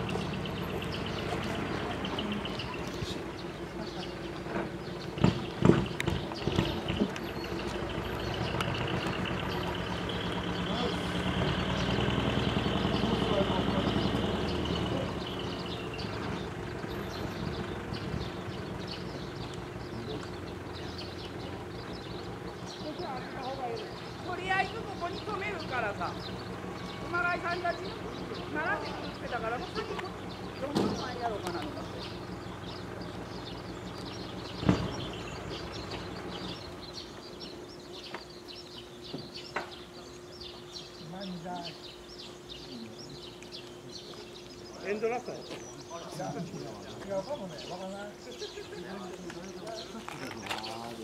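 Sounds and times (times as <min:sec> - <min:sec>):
diesel truck engine rumbling: 0:00.0 - 0:51.0
small birds chirping rapidly: 0:00.0 - 0:51.0
dull thump: 0:34.6 - 0:35.0.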